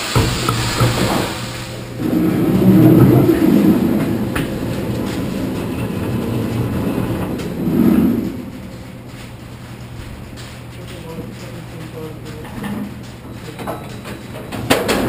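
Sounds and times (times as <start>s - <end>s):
roller coaster wheels rumbling on track: 0.3s - 9.2s.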